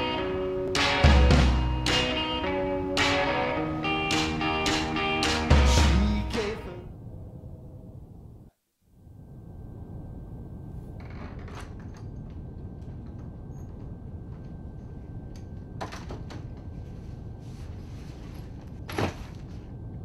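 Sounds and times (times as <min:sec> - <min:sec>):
room tone hiss: 0:00.0 - 0:20.0
rustling: 0:16.6 - 0:19.8.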